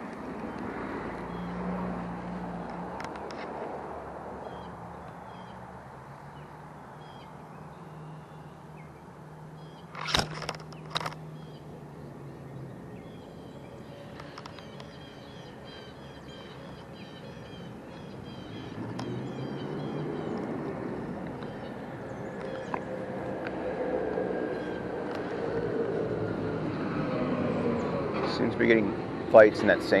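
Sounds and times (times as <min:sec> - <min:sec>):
gear handling clicks and knocks: 0:02.6 - 0:03.6, 0:09.9 - 0:11.3.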